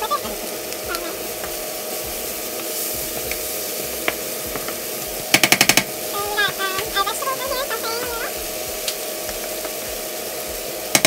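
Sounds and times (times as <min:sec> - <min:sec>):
vegetables sizzling in a frying pan: 0:00.0 - 0:11.0
loud sharp clicks: 0:05.3 - 0:05.9.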